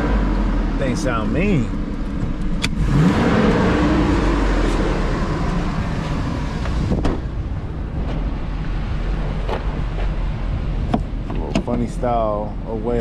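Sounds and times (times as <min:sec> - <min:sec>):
car engine idling: 0:00.0 - 0:13.0
thud: 0:06.8 - 0:07.3.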